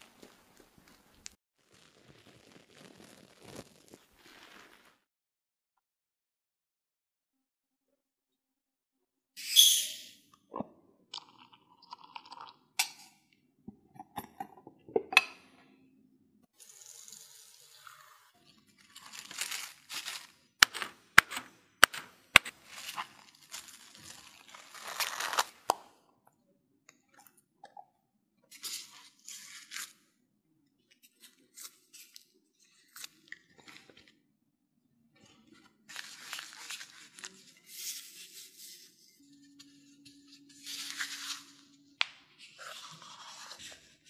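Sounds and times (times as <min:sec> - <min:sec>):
cling film crinkling: 0:00.0 - 0:05.0, 0:16.6 - 0:21.0, 0:22.4 - 0:25.7.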